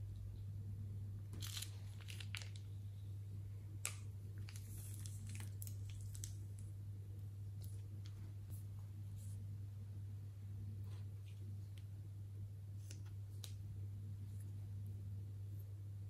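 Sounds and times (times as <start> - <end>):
steady low hum: 0.0 - 16.0
plastic bag crinkling: 1.4 - 2.7, 3.8 - 6.4.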